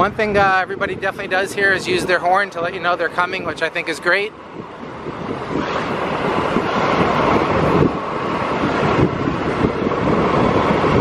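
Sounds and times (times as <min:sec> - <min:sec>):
scooter road noise: 0:00.0 - 0:11.0
wind rushing over microphone: 0:00.0 - 0:11.0.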